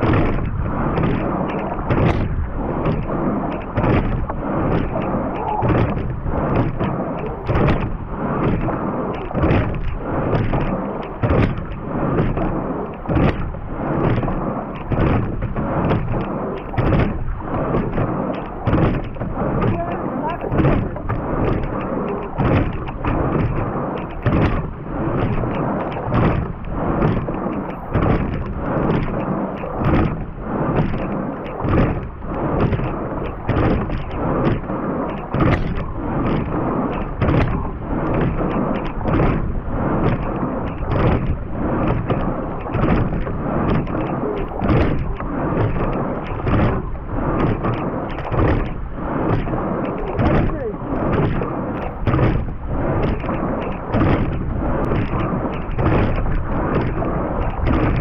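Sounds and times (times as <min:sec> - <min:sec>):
oars knocking in oarlocks: 0:00.0 - 0:58.0
water rushing past hull: 0:00.0 - 0:58.0
wind on microphone: 0:00.0 - 0:58.0.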